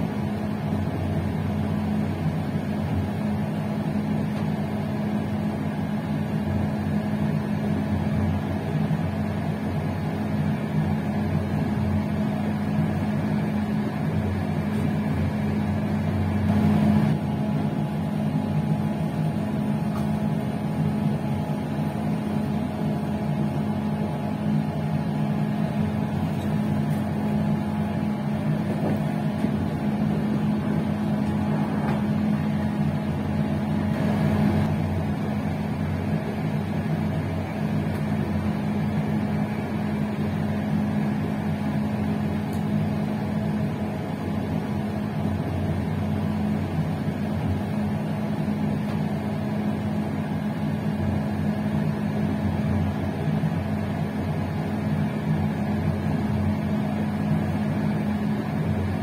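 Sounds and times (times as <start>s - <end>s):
passenger train rolling and rumbling: 0.0s - 40.5s.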